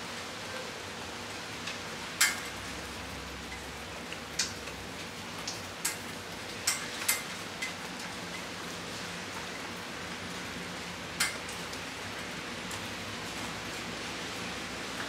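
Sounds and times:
rain shower hiss: 0:00.0 - 0:15.0.

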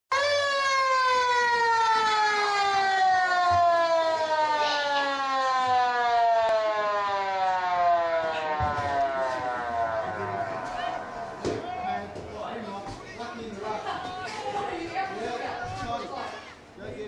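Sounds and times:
siren winding down: 0:00.1 - 0:12.2.

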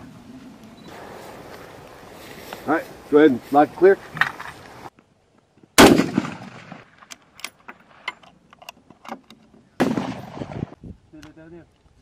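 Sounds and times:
rifle shots: 0:05.8 - 0:07.1, 0:09.8 - 0:10.8.

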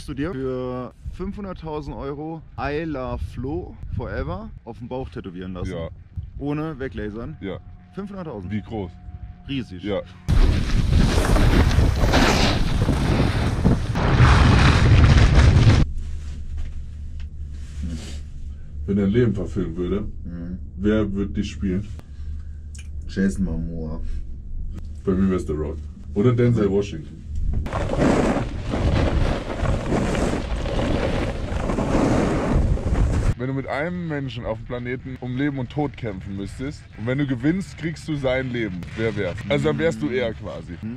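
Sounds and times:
snowboard scraping over snow: 0:10.4 - 0:15.1, 0:27.7 - 0:33.4
wind buffeting microphone: 0:27.5 - 0:33.4.

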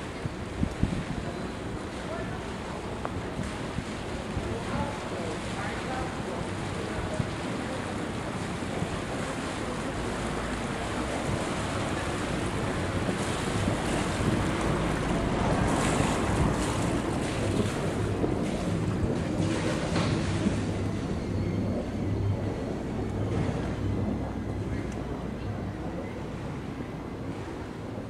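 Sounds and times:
boat engine running: 0:00.0 - 0:28.0
water churning: 0:00.0 - 0:28.0
wind on microphone: 0:00.0 - 0:28.0.

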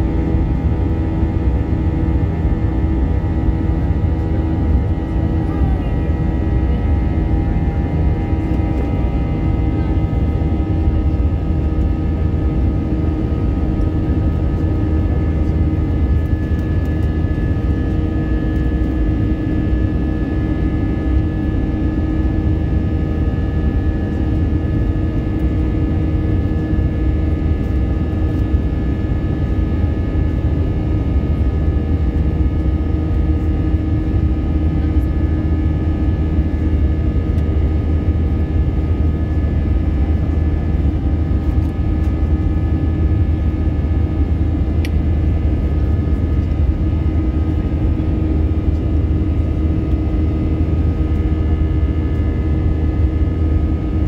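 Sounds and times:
jet engines rumbling in cabin: 0:00.0 - 0:54.0.

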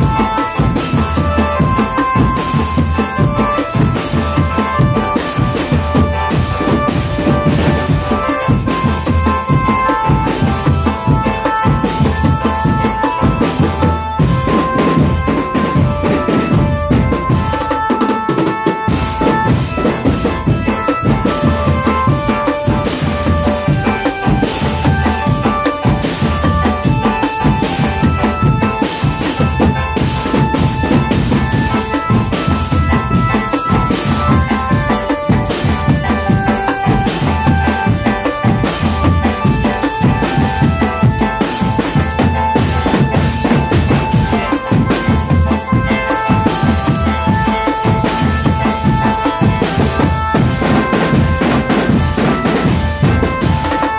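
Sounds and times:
drum band playing: 0:00.0 - 0:53.9
melody of held notes: 0:00.0 - 0:53.9.

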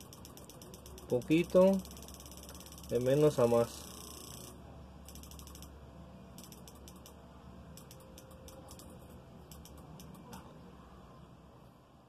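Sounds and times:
quick mechanical clicking: 0:00.0 - 0:05.7, 0:06.4 - 0:07.2, 0:07.8 - 0:10.4
faint low hum: 0:00.0 - 0:12.0.

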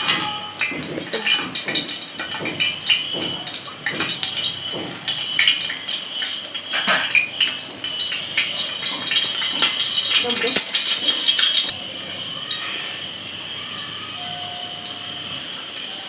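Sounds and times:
oil popping: 0:00.0 - 0:11.7
ghee sizzling and crackling: 0:00.6 - 0:14.1.

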